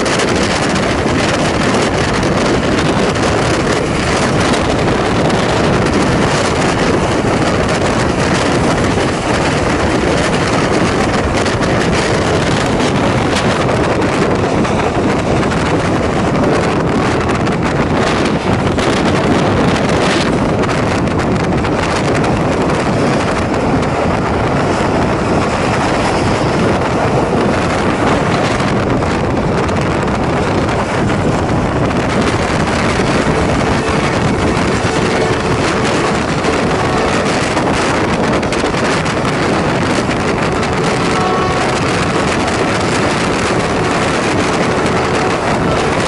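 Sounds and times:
train wheels rumbling on track: 0.0 - 46.0
wind buffeting microphone: 0.0 - 46.0.

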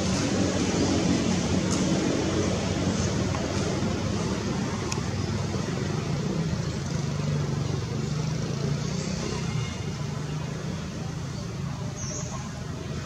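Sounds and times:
constant hum: 0.0 - 8.0.

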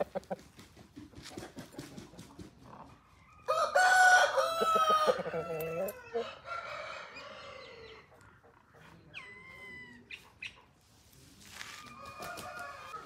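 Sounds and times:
rooster crowing: 3.4 - 8.0, 11.9 - 13.0.

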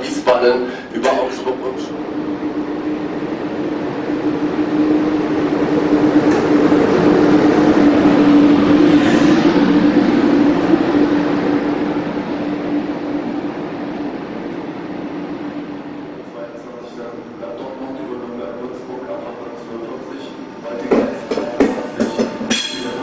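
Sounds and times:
electric locomotive passing: 0.0 - 23.0.

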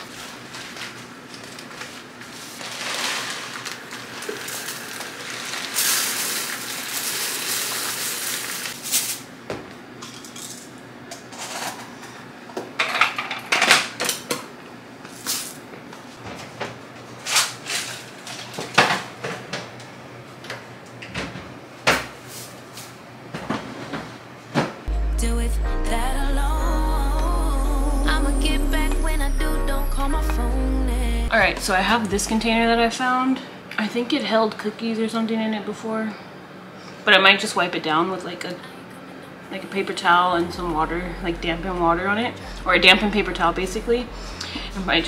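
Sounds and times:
rice pouring into container: 2.5 - 9.0.

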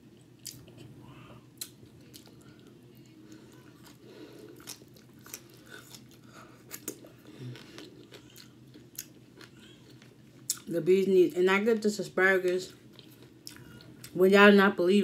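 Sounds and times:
steady low hum: 0.0 - 15.0
chewing and biting: 3.4 - 10.7.

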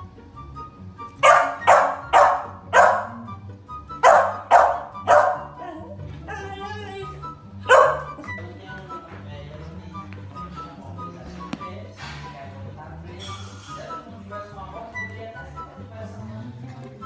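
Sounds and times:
background music: 0.0 - 17.0
small dog barking: 1.2 - 3.2, 4.0 - 5.6, 7.6 - 8.2.

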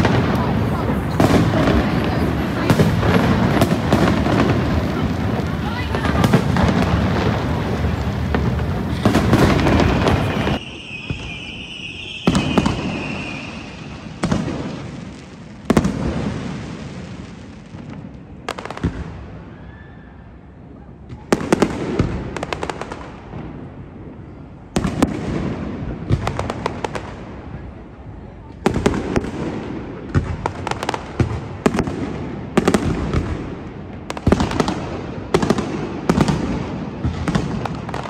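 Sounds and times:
quick firework cracks: 0.0 - 16.5
crackling firework bursts: 0.0 - 38.0.

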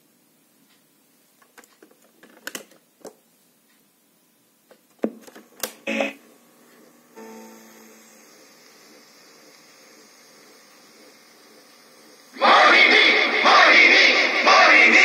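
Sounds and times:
tape deck hum and hiss: 0.0 - 15.0
cassette player keys clunking: 1.5 - 2.8.

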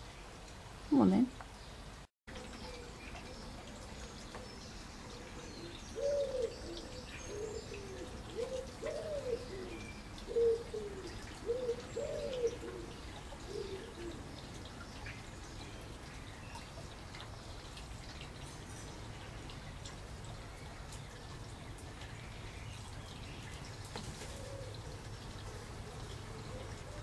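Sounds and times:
small birds chirping: 0.0 - 27.0
pigeon cooing: 5.1 - 14.2, 24.1 - 25.0.

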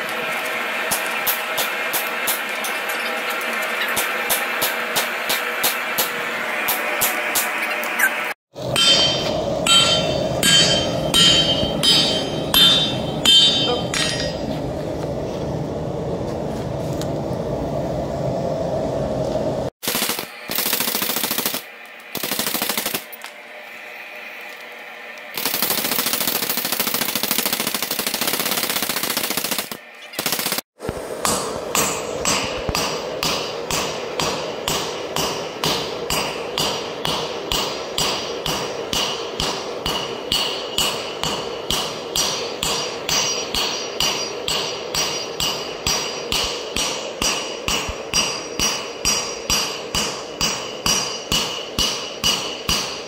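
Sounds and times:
hammer ringing on anvil: 8.6 - 14.6, 31.2 - 53.0.

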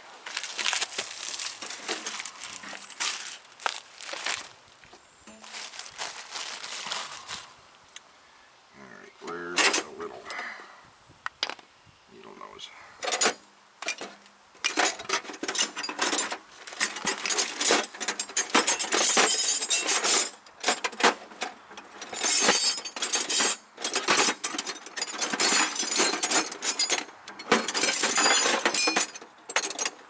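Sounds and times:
metal hand tools clattering: 13.0 - 21.2, 21.8 - 30.0.

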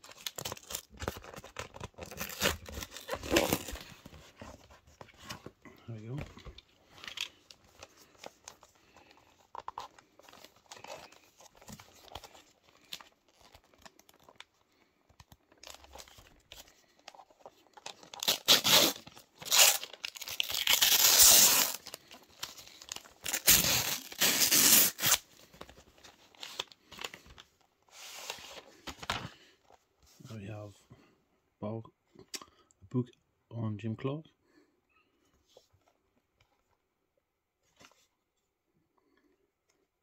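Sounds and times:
paper and cardboard ripping: 0.0 - 4.0, 18.0 - 25.2
paper packaging rustling: 0.0 - 29.5.

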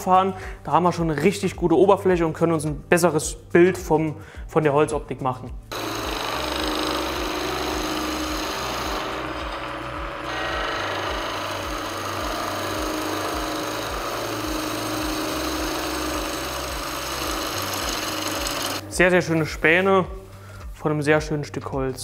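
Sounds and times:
chisel cutting wood on a lathe: 5.7 - 18.8
lathe running hum: 5.7 - 18.8.

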